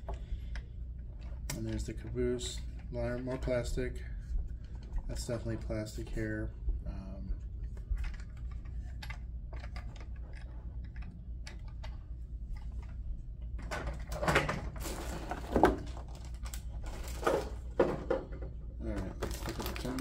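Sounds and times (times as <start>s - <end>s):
plastic packaging crinkling: 18.8s - 20.0s.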